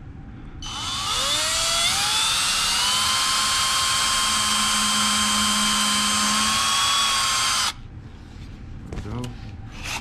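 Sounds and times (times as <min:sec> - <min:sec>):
cordless drill boring into wood: 0:00.6 - 0:07.8.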